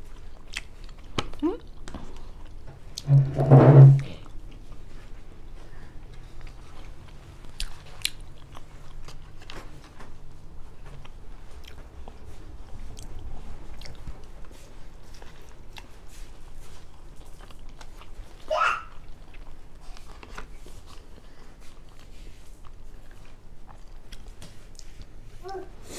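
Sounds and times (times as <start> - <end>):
close chewing and biting: 0.0 - 2.6, 6.0 - 25.2
rising squeak: 3.0 - 4.1.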